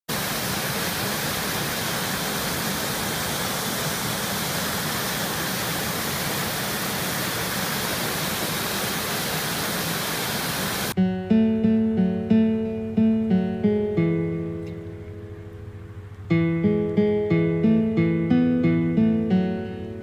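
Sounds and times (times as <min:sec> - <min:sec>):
waterfall rushing: 0:00.1 - 0:11.0.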